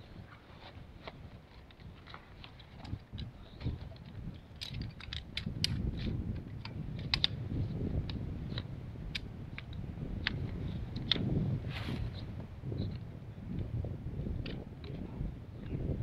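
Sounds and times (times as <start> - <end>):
camp chair frame clicking and rattling: 0.0 - 11.4.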